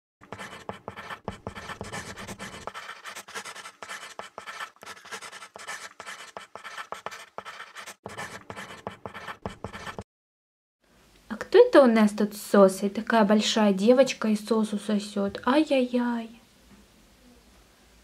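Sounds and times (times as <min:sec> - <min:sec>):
chalk scratching on chalkboard: 0:00.2 - 0:10.0.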